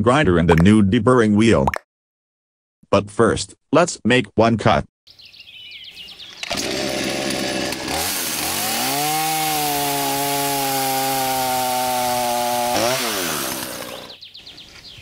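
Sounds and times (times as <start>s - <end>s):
chainsaw sawing through log: 6.4s - 14.2s.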